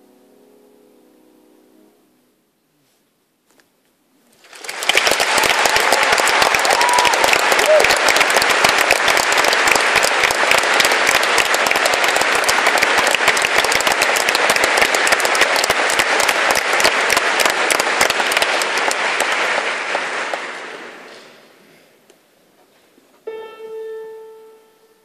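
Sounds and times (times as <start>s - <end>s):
audience applause: 4.3s - 21.6s.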